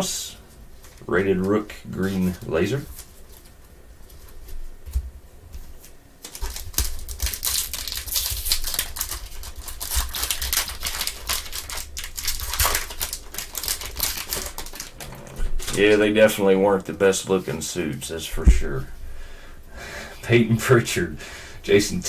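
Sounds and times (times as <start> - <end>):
foil wrapper crinkling and tearing: 6.2 - 16.0.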